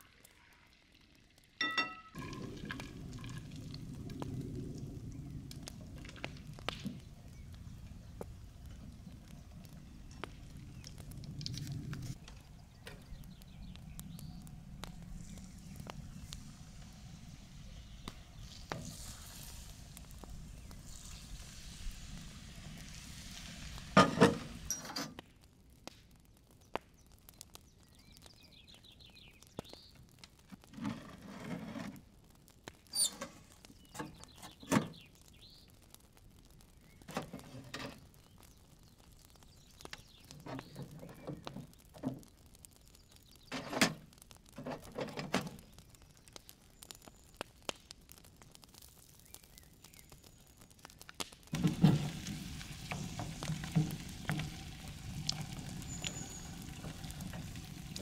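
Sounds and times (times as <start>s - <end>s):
metal cookware clanking: 1.6s - 2.2s
liquid hissing poured from a pan: 15.0s - 24.9s, 51.5s - 58.0s.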